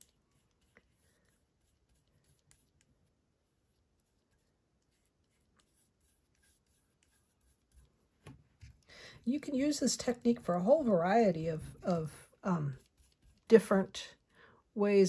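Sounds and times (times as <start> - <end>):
paintbrush ticking on paper: 0.0 - 3.1, 3.7 - 8.2, 10.1 - 13.6.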